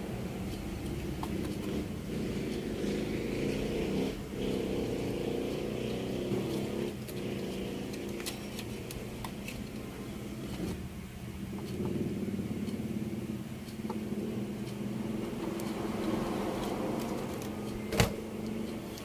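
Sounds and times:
engine humming: 0.0 - 19.0.

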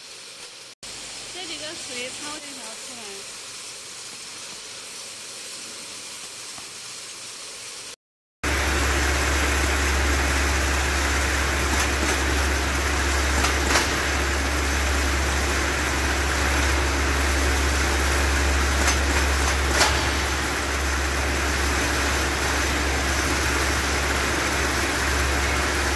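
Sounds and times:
low hum: 8.4 - 25.9
sorting machine running: 8.4 - 25.9.

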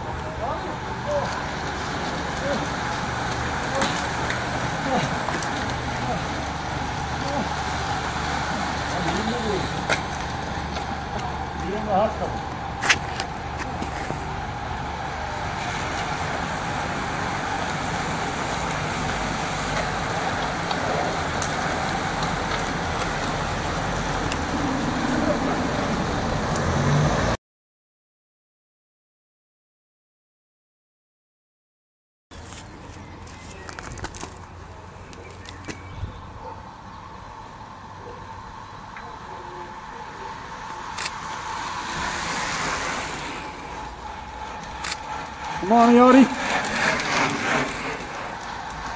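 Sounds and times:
car engine: 0.0 - 27.4, 36.4 - 48.9
racing bicycles rushing past: 0.0 - 27.4, 38.4 - 48.9.

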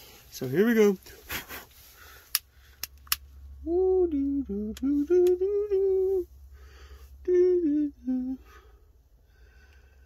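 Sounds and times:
man humming a tune: 3.6 - 6.3, 7.2 - 8.7.

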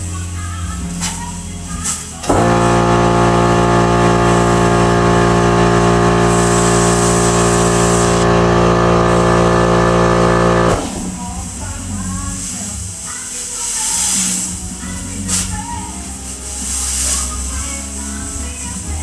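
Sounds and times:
electric tool buzzing: 2.2 - 11.4.

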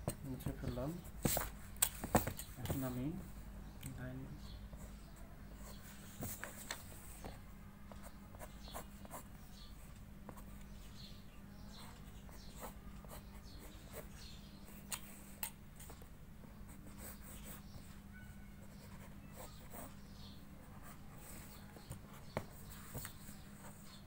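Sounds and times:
pencil scratching on paper: 11.8 - 14.2, 16.7 - 17.9, 18.6 - 20.0.

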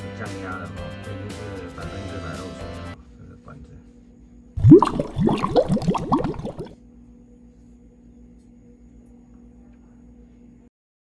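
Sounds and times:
water bubbling: 4.6 - 6.7.

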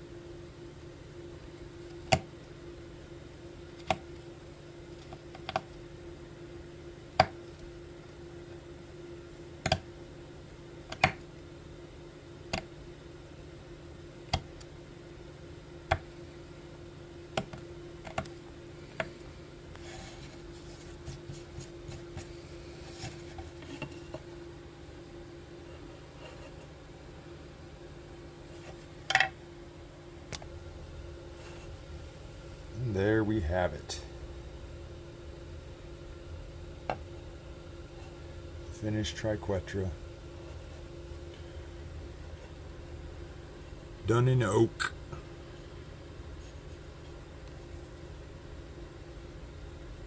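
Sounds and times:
steady hum: 0.0 - 50.0
carving tool clicking on wood: 9.6 - 9.8.

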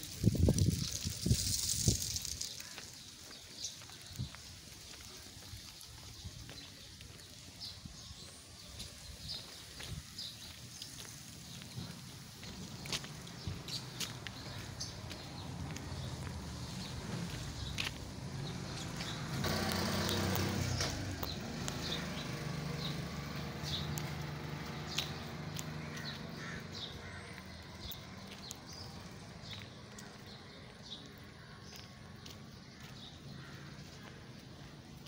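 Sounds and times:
vehicle engine hum: 10.4 - 35.0.

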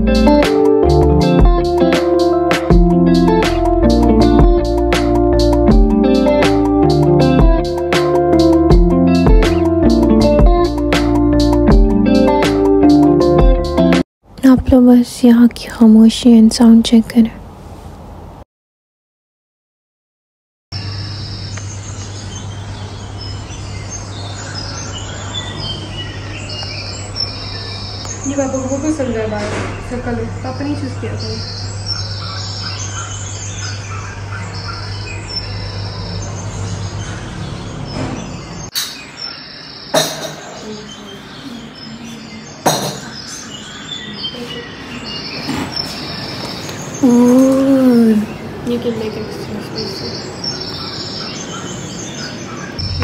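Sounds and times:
birds chirping: 20.7 - 53.0
dishes knocking on wooden table: 40.0 - 40.6, 42.6 - 43.2
steady low hum: 52.8 - 53.0.

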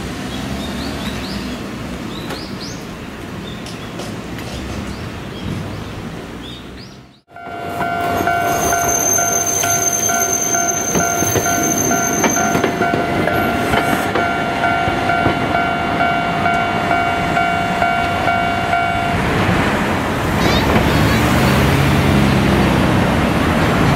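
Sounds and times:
street noise: 0.0 - 23.9
streetcar wheels on rails: 0.0 - 23.9
level crossing warning bell: 7.3 - 19.4.

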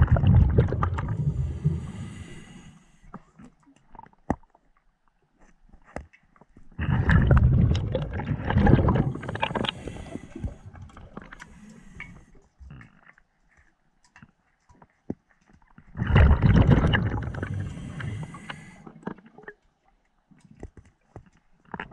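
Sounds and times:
underwater exhaled bubbles: 0.0 - 4.0, 6.8 - 13.0, 16.0 - 19.6.

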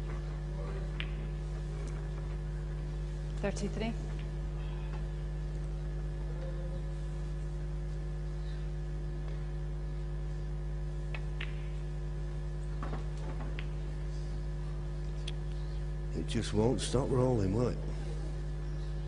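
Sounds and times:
electrical mains hum: 0.0 - 19.0
snooker balls clicking: 0.9 - 2.4, 11.1 - 11.8, 12.8 - 13.9.

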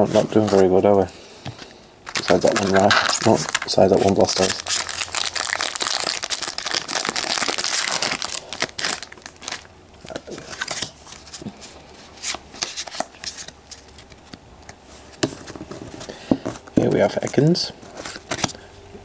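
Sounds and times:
cards rustling and clicking: 1.5 - 18.6
foil wrapper crinkling and tearing: 2.0 - 11.3.

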